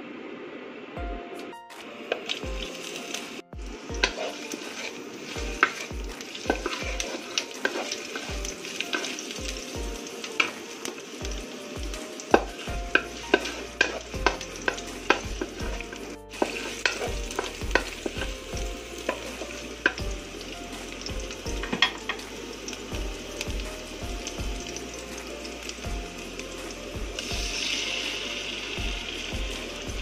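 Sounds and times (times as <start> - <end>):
onion sizzling in oil: 1.8 - 30.0
spatula knocking and scraping pan: 3.9 - 9.2.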